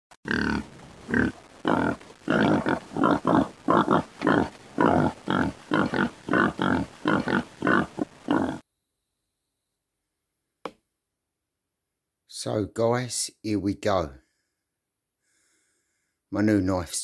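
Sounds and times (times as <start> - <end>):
pig grunting: 0.2 - 8.6.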